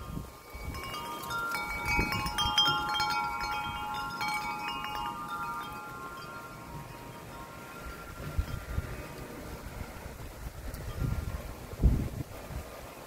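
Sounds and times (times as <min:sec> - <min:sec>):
wind chime ringing: 0:00.0 - 0:09.4
low rush of wind: 0:00.0 - 0:13.0.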